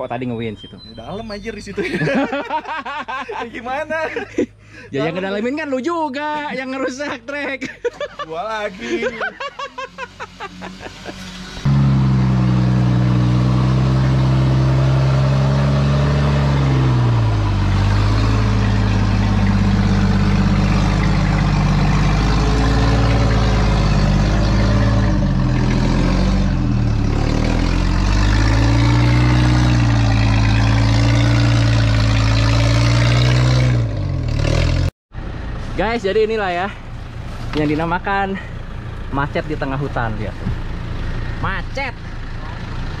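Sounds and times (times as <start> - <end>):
off-road vehicle engine revving: 8.5 - 34.9.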